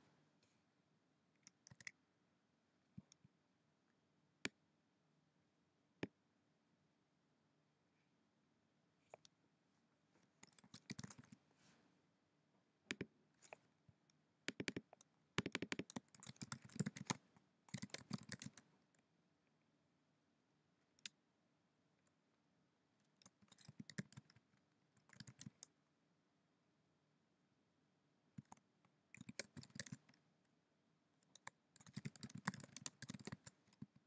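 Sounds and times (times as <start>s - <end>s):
keyboard typing: 10.4s - 11.4s, 14.5s - 18.6s, 23.2s - 24.4s, 25.0s - 25.6s, 29.2s - 30.0s, 31.3s - 33.9s.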